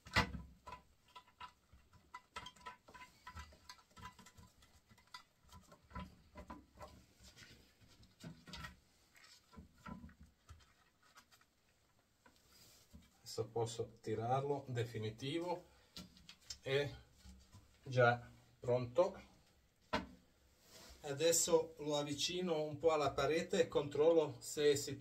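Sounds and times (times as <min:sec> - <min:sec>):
small clicks and scrapes of nuts: 0:00.0 - 0:13.1.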